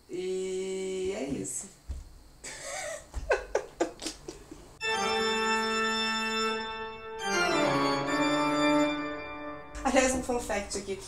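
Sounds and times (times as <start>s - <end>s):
held organ chord: 4.8s - 11.0s.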